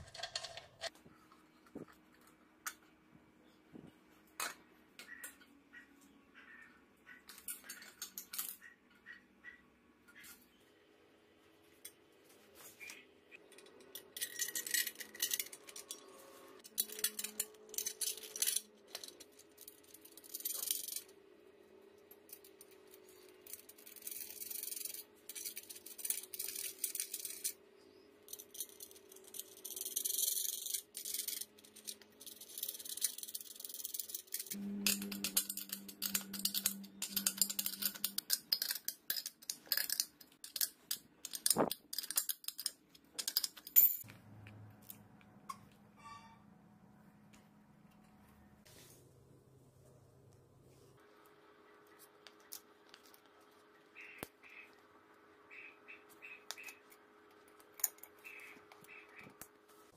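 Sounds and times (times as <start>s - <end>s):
metal hardware clinking and rattling: 0.0s - 1.0s, 13.4s - 21.1s, 28.3s - 44.1s.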